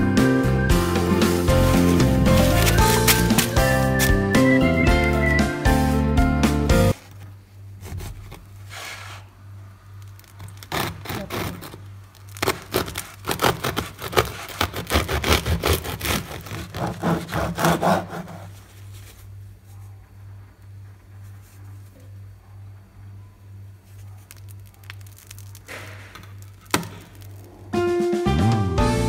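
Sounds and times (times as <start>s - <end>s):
knife sawing through crusty bread: 10.6s - 11.8s, 12.4s - 18.6s.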